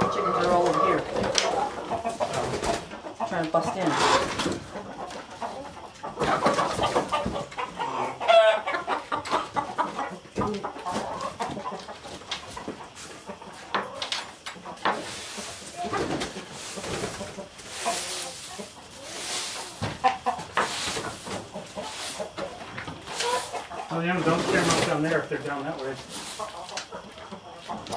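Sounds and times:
chickens clucking: 0:00.0 - 0:27.9
rustling in wood chips: 0:14.9 - 0:26.8.

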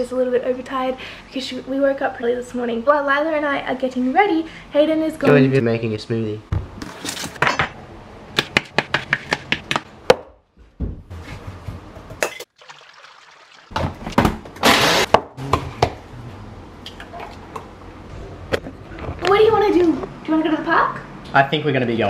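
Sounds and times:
knife chopping on plastic board: 0:08.4 - 0:10.3.

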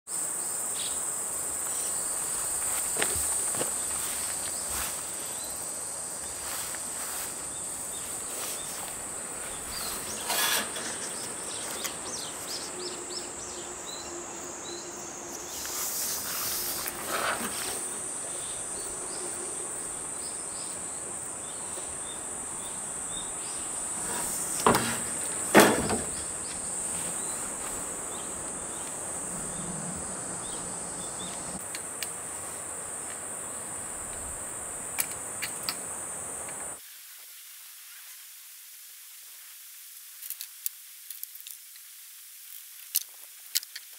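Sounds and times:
insects chirring: 0:00.1 - 0:43.9
building materials knocking: 0:24.0 - 0:26.4.

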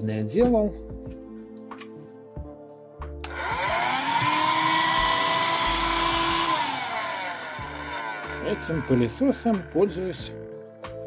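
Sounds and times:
handheld vacuum cleaner motor: 0:03.2 - 0:10.0.

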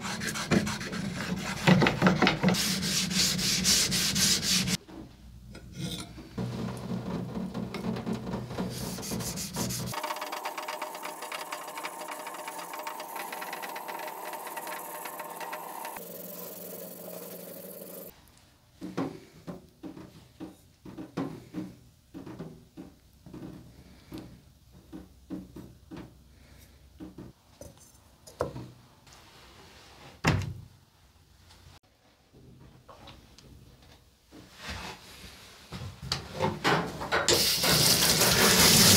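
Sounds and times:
knife scraping on whetstone: 0:08.7 - 0:17.2.

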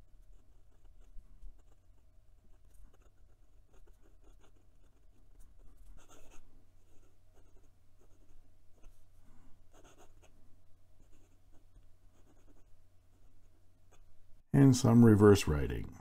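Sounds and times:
pen nib scratching on paper: 0:00.1 - 0:09.0, 0:09.7 - 0:10.3, 0:11.0 - 0:14.1.

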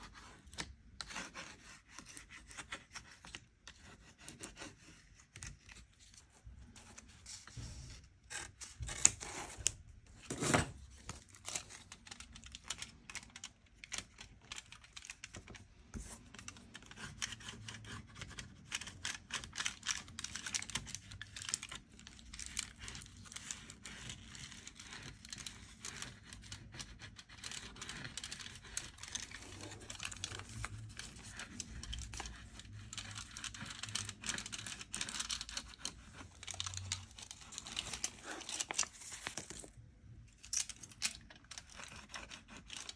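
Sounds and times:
handling clicks and scratches: 0:10.3 - 0:42.9.

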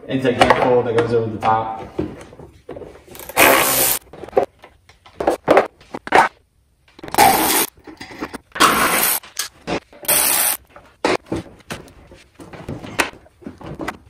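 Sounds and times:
short hissing bursts: 0:03.4 - 0:04.0, 0:10.1 - 0:10.6
tools and parts clicking and knocking: 0:07.0 - 0:11.2.

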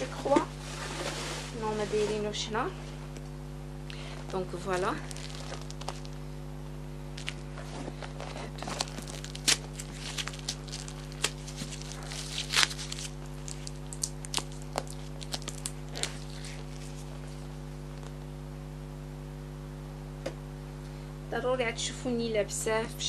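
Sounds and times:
tissue paper rustling: 0:00.0 - 0:02.6, 0:04.3 - 0:06.2, 0:07.1 - 0:17.5
low electrical hum: 0:00.0 - 0:23.0.

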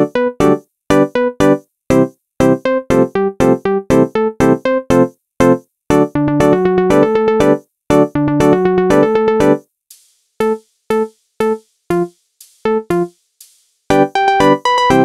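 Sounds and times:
synth keyboard music: 0:00.0 - 0:05.1, 0:05.9 - 0:09.6, 0:10.4 - 0:12.1, 0:12.7 - 0:13.1, 0:13.9 - 0:15.0.

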